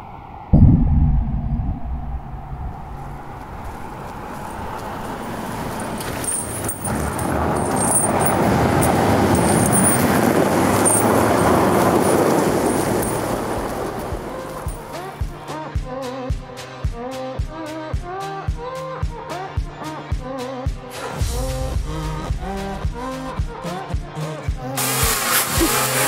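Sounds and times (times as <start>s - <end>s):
deep low sound: 0.4s - 5.9s
vehicle road noise: 1.6s - 15.2s.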